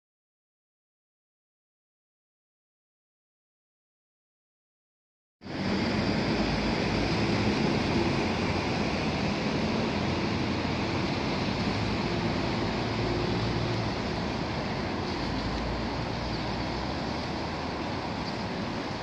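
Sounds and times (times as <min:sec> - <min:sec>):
river rushing roar: 0:05.4 - 0:19.0.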